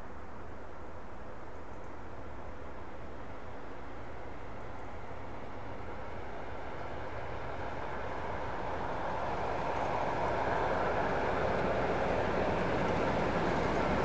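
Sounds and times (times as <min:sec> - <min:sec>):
diesel locomotive engine throbbing: 0:05.1 - 0:14.0.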